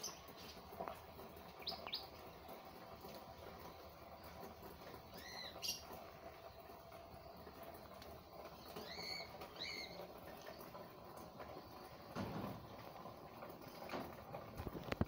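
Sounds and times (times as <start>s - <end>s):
low steady hiss: 0.0s - 15.0s
bird chirping: 8.6s - 10.0s.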